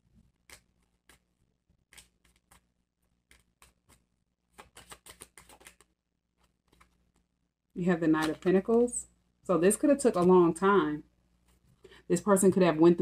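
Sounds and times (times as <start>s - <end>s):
cards being shuffled: 0.2s - 7.3s, 8.2s - 8.7s.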